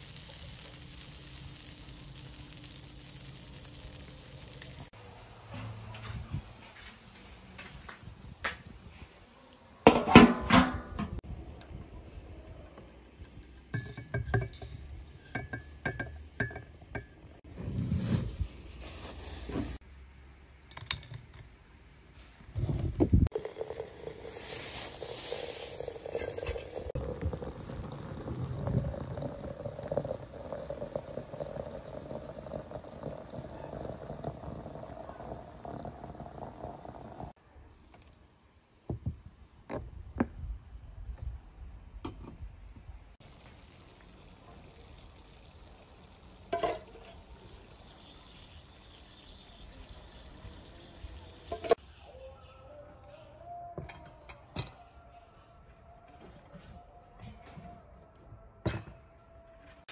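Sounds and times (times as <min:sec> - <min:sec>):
water pouring into teapot: 0:00.0 - 0:05.0, 0:23.3 - 0:37.4, 0:43.2 - 0:51.8.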